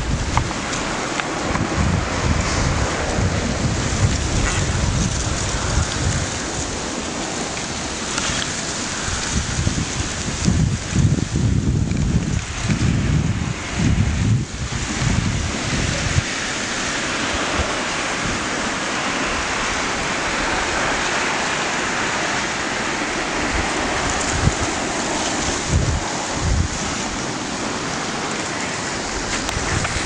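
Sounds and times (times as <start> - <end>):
ice floes grinding together: 15.0 - 30.0.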